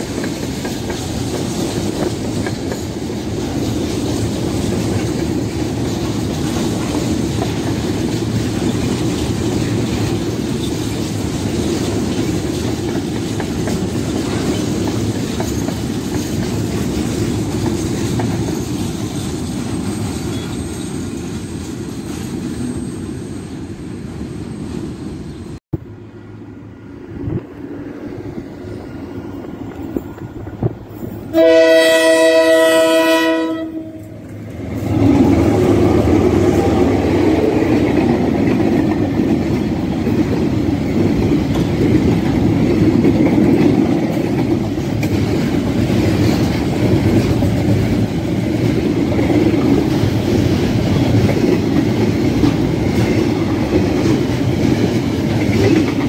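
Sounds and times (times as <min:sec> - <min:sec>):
train wagons rumbling past: 0:00.0 - 0:56.0
train horn: 0:31.3 - 0:34.2.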